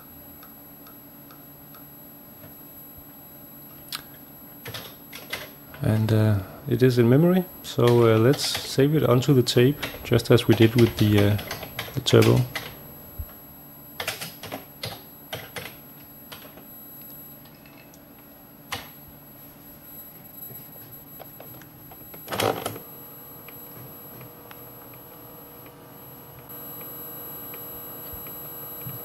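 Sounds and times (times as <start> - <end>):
cassette motor humming: 0.0 - 29.0
keyboard keystrokes: 4.6 - 5.5, 9.5 - 12.8, 14.0 - 16.6.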